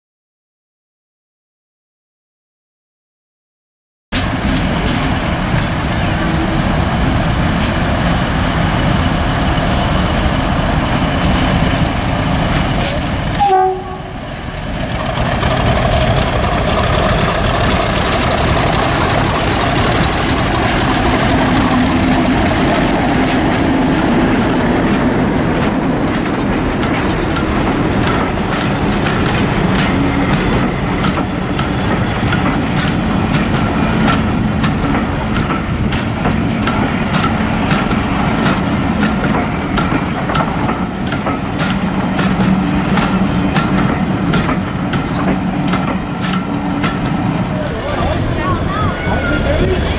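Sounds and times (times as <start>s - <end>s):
coaches rolling on rails: 4.2s - 49.9s
diesel locomotive passing: 4.2s - 49.9s.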